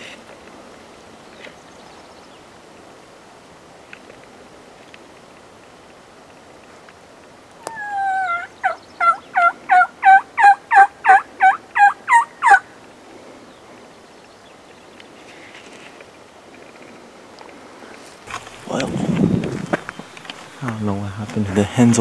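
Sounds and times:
turkey yelping: 7.6 - 12.7.

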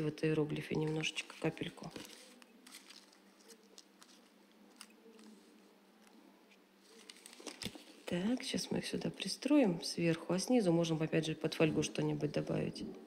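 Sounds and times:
faint clicks and rustles: 0.7 - 8.5.

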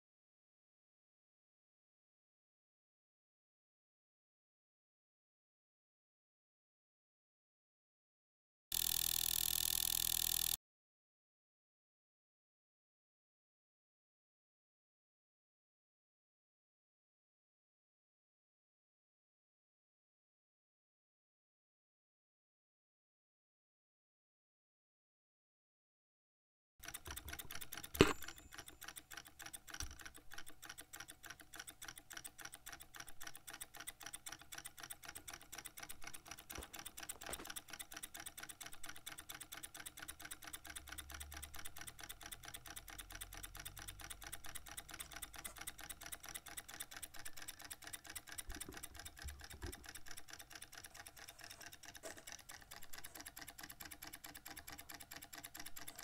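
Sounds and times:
electric motor fast mechanical clicking: 8.7 - 10.6, 26.8 - 56.0.

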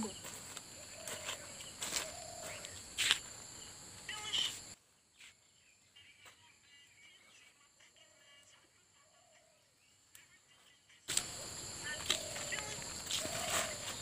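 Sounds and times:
high insect buzz: 0.0 - 14.0
fern stems snapping: 11.1 - 11.4.

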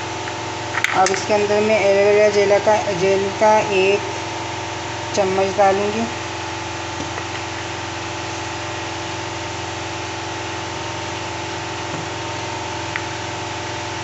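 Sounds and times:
machine hum: 0.0 - 14.0.

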